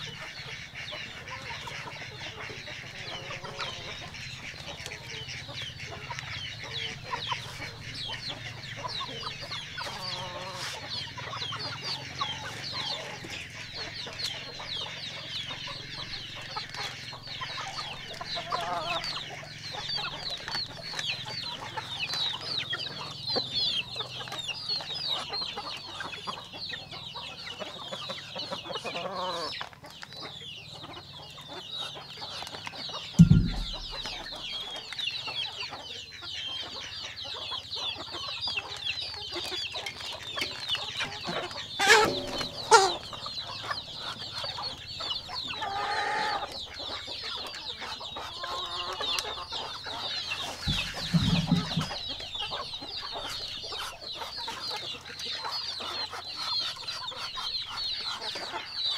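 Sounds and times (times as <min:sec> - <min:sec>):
chickens clucking and peeping: 0:00.0 - 0:58.9
dull thump: 0:33.2 - 0:34.3, 0:50.7 - 0:51.9
sharp knocks: 0:33.2 - 0:34.4, 0:50.7 - 0:52.0.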